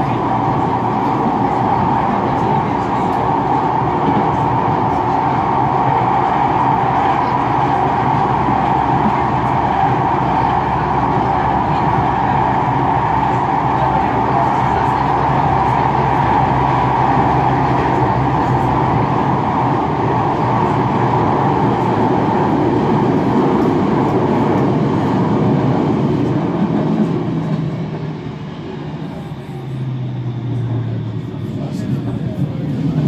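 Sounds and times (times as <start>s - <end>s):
tram wheels rumbling on rail: 0.0s - 33.0s.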